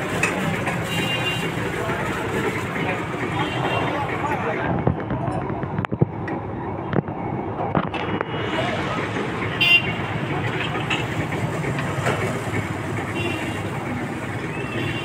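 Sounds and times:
street traffic: 0.0s - 15.0s
car horn toot: 9.6s - 10.0s.

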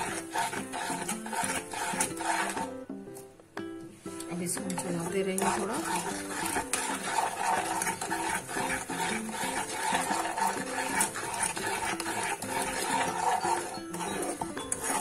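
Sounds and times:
spoon scraping a pan: 0.0s - 3.2s, 4.2s - 15.0s
soft background music: 0.0s - 15.0s.

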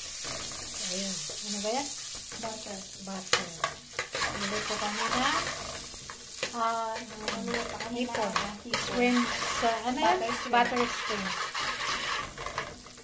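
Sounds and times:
butter sizzling in a pot: 0.0s - 13.0s
metal spoon scraping a pot: 3.6s - 13.0s.

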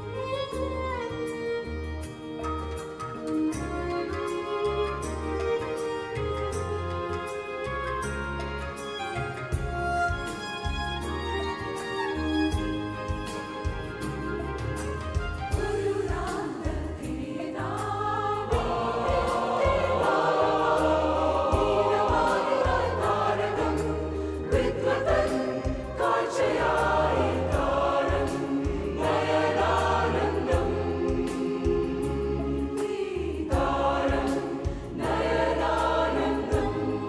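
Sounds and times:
choir singing a carol in harmony: 15.5s - 37.0s.

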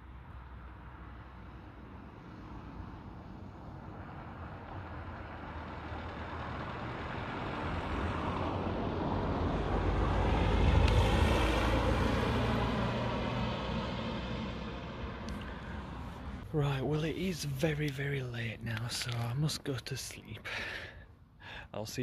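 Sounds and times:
vehicle driving past: 1.0s - 16.5s.

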